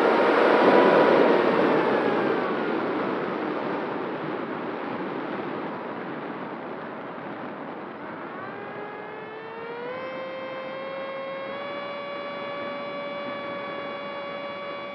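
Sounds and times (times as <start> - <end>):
electric motor whine: 0.0 - 2.7, 7.9 - 14.9.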